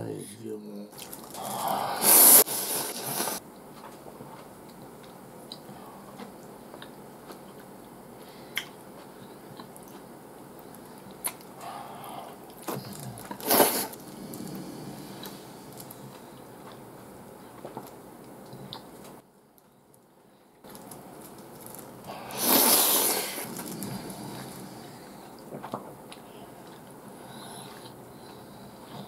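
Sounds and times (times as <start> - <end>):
noodles being slurped: 1.0 - 3.4, 12.6 - 16.8, 21.6 - 25.4
quiet chewing: 2.8 - 29.0.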